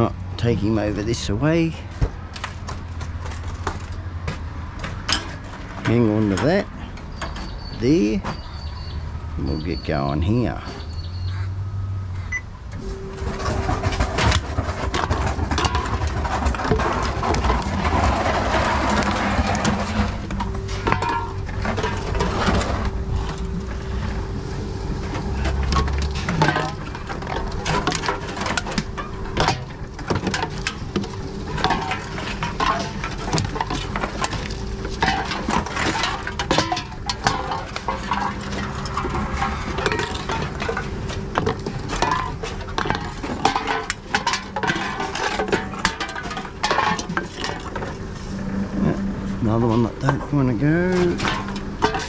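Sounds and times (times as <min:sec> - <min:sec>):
steady machine hum: 0:11.9 - 0:52.0
cans clinking against machine rollers: 0:12.8 - 0:24.1, 0:25.1 - 0:52.0.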